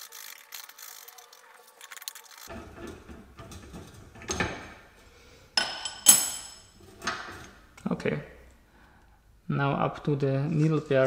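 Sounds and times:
bearing puller scraping and knocking: 2.5 - 4.8.

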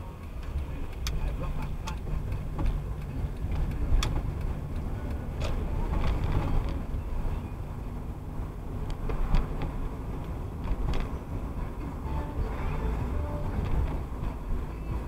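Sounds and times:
car road and engine rumble: 0.0 - 15.0
sharp clicks and rattles: 0.1 - 7.2, 7.9 - 11.2.

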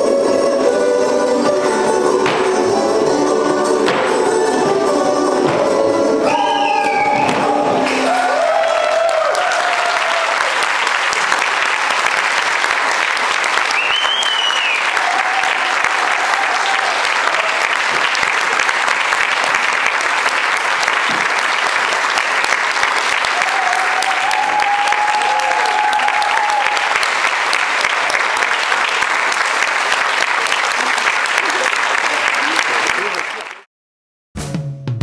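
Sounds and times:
live dance music: 0.0 - 8.3
audience applauding: 6.3 - 33.7.

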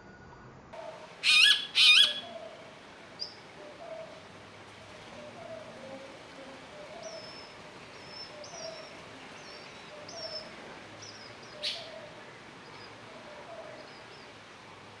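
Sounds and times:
softer lower bird call: 1.2 - 2.6.

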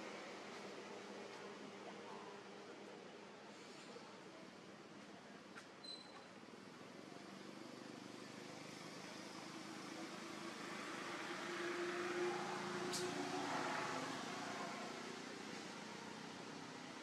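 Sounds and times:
vehicle passing at a distance: 7.6 - 17.0.

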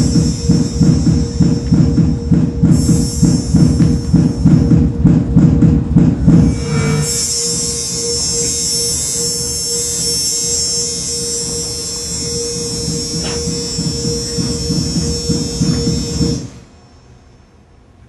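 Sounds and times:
bright high hiss: 0.0 - 4.9, 6.4 - 17.7
low pulsing rumble: 0.0 - 16.7
electronic droning tone: 0.0 - 18.0.

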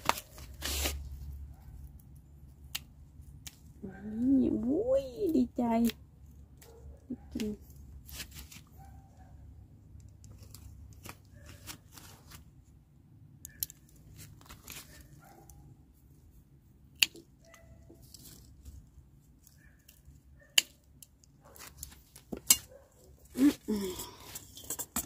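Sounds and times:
scissors snipping: 1.9 - 3.6.

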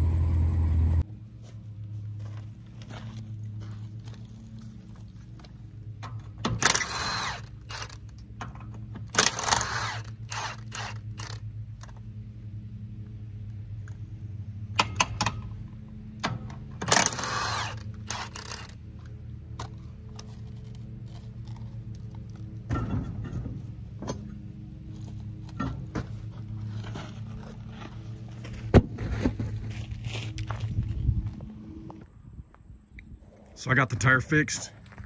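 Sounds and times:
steady low hum: 0.0 - 35.0
impact wrench bursts: 6.4 - 8.2, 9.0 - 11.4, 16.8 - 18.8.

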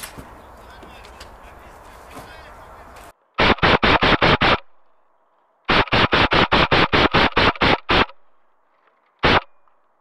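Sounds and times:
airsoft gun firing: 5.7 - 8.2.

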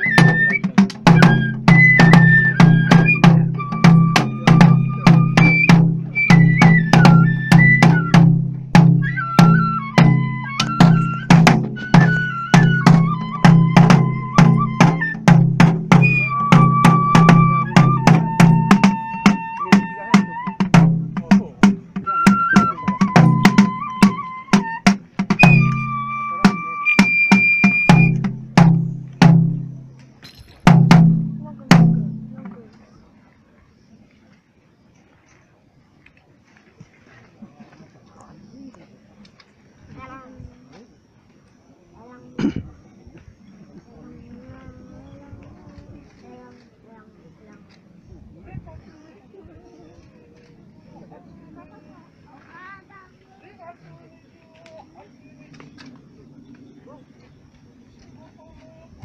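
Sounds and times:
bamboo flute melody: 0.0 - 29.6
taiko drum beat: 0.0 - 29.9, 30.6 - 32.6.

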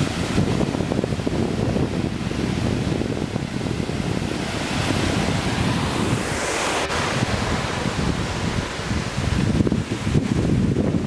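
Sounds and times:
waterfall rushing over rocks: 0.0 - 11.0
wind buffeting microphone: 0.0 - 11.0.

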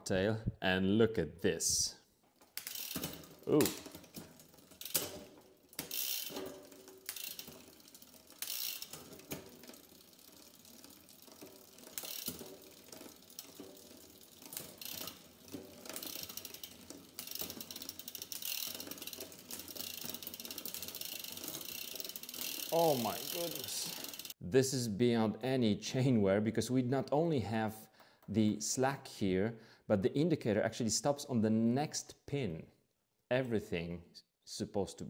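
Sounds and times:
bicycle chain clicking over gears: 2.4 - 24.4
freehub pawls ratcheting: 2.4 - 24.4.

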